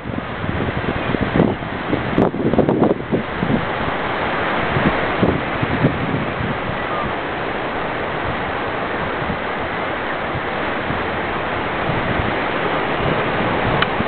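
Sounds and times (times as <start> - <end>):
distant surf: 0.0 - 14.0
wind rumble on microphone: 0.0 - 14.0
wind rushing: 0.0 - 14.0.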